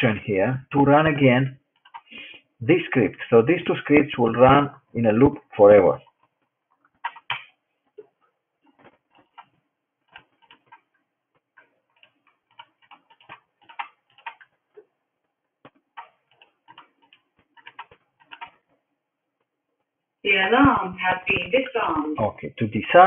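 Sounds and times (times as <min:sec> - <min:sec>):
computer mouse clicks: 0:01.7 - 0:02.1, 0:06.0 - 0:07.6, 0:08.7 - 0:14.9, 0:15.6 - 0:18.7.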